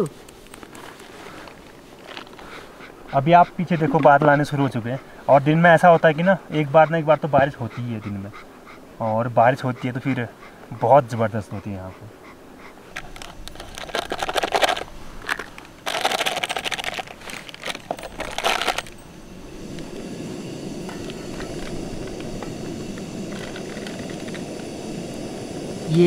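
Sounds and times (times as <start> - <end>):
gas stove burner hissing: 2.4 - 15.9, 17.4 - 26.0
plastic sachet crinkling: 13.0 - 19.0.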